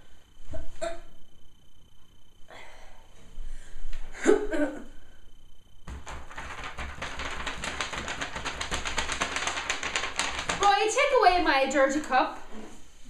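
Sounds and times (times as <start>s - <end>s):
paper shaken rattling: 5.9s - 11.2s.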